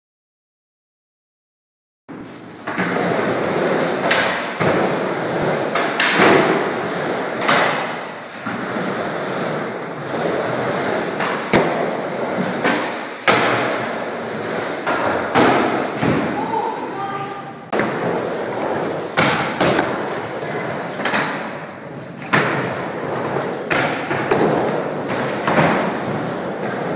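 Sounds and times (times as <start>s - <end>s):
skateboard wheels rolling on wood: 2.1s - 16.8s, 17.6s - 26.9s
skateboards clacking on ramps: 2.6s - 16.5s, 17.7s - 26.9s.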